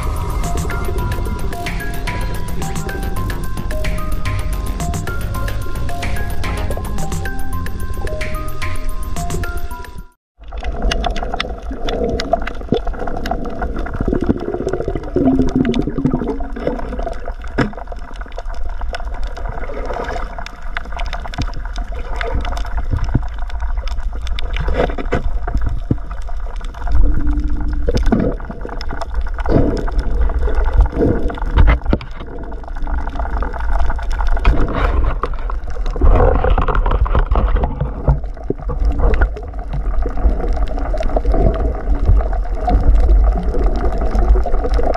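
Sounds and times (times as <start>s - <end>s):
underwater rumble of moving water: 0.0s - 3.6s, 10.4s - 44.9s.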